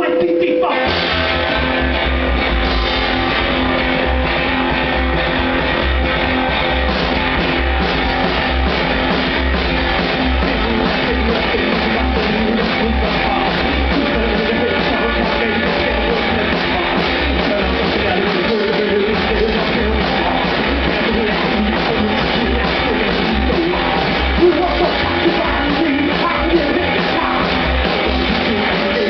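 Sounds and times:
person counting in: 0.0 - 0.9
rock and roll band playing: 0.0 - 29.0.

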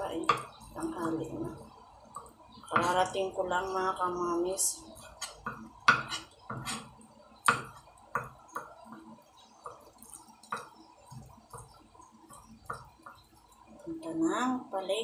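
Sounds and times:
knife chopping on cutting board: 5.2 - 6.9.

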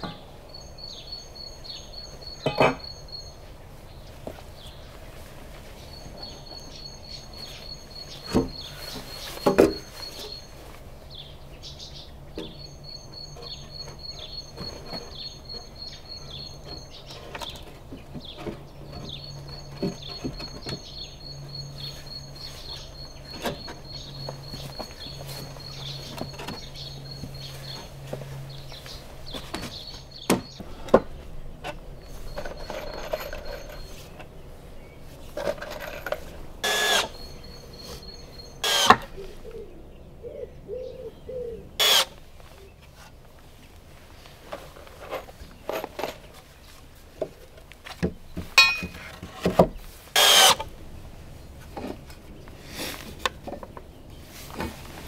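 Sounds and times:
high bird trill: 0.0 - 5.0, 5.6 - 42.8
birds singing: 0.0 - 43.0.

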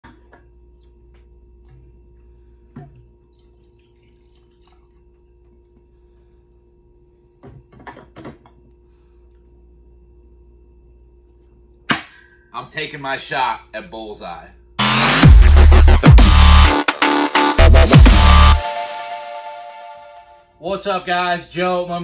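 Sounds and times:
steady low hum: 0.0 - 16.7
liquor pouring into glass: 3.3 - 5.2.

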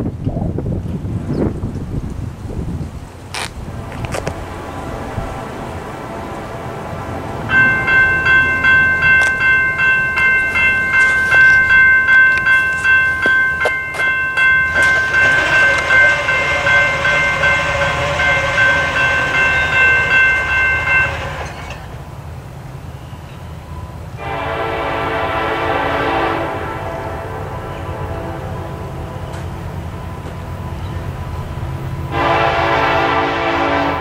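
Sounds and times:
distant train horn: 3.7 - 21.9, 24.1 - 34.0
electronic crossing bell dinging: 7.5 - 21.9.

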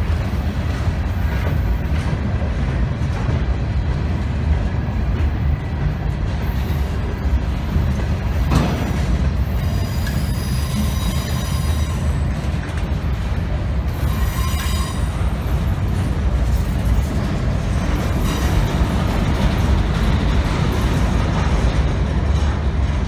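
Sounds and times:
train rumbling on rails: 0.0 - 23.0
high-pitched wheel squeal: 9.6 - 12.3, 14.0 - 15.2.

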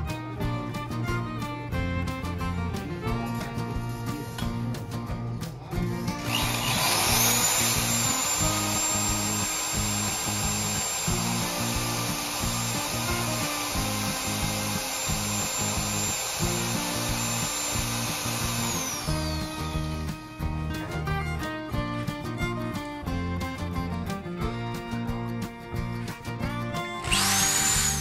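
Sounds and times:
background music with beat: 0.0 - 28.0
electric drill whining: 5.7 - 22.4, 26.7 - 28.0.

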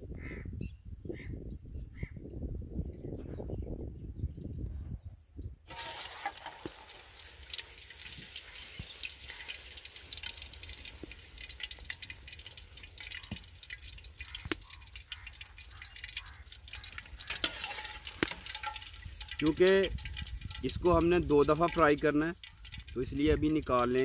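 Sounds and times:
chicken deep-frying in oil: 5.7 - 24.0.

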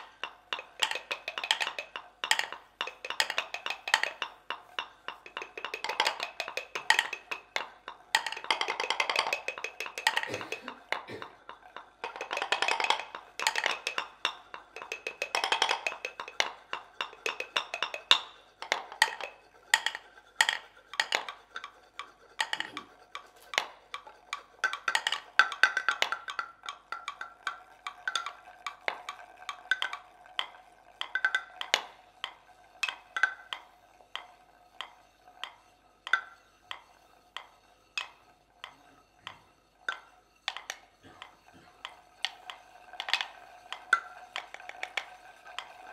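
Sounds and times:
hollow wooden mortar knocks: 0.0 - 36.8, 37.4 - 45.9
faint steady ring: 0.0 - 45.9.

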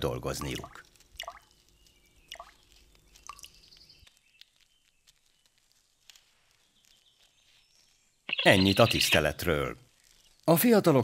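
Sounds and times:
water drips and splashes: 0.0 - 3.7
faint high thin bird calls: 6.5 - 9.3.

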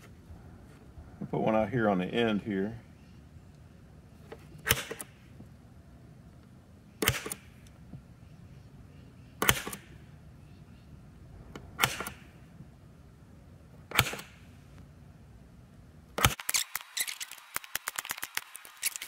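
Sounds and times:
center punch snapping: 7.0 - 7.5, 9.4 - 9.9, 11.6 - 12.3, 13.9 - 14.4.

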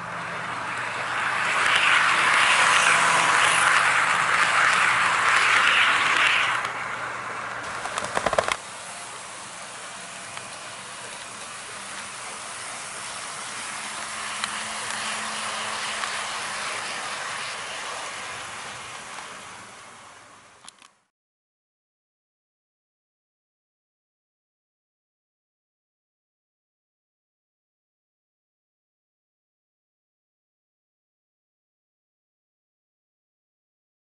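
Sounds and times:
model train running: 0.0 - 20.9
cluster of clicks: 7.7 - 8.6.

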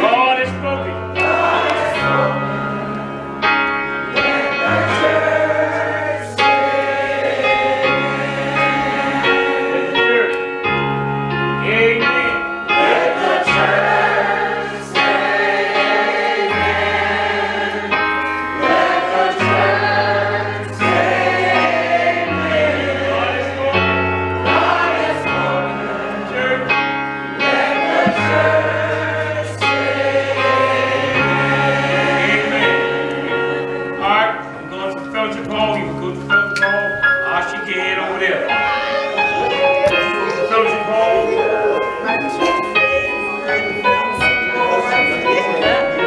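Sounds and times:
gospel choir singing: 0.0 - 46.0
keyboard accompaniment: 0.0 - 46.0.

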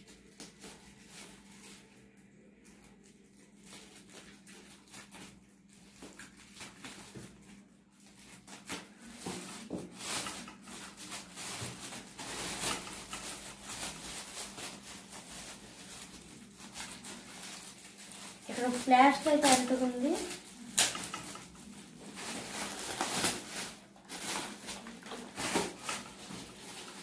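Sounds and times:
plastic wrap crinkling: 0.0 - 27.0
scissors cutting plastic: 8.3 - 27.0.

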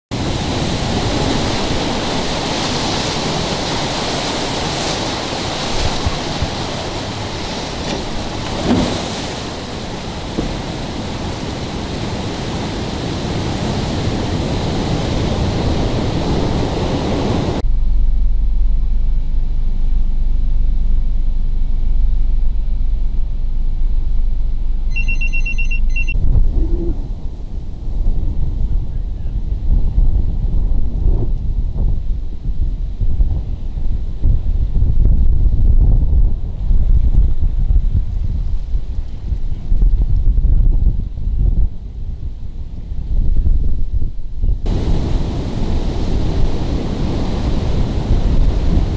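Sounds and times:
surf water rushing and foaming: 0.1 - 17.6, 44.6 - 48.9
wind buffeting microphone: 0.1 - 19.6, 26.2 - 48.9.

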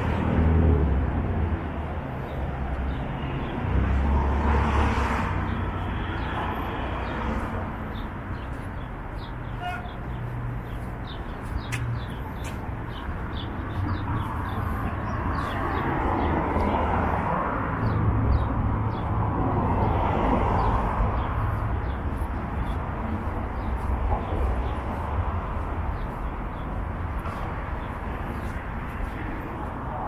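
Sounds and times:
traffic rumble: 0.0 - 30.0
small birds chirping: 5.4 - 19.2, 20.6 - 29.8.

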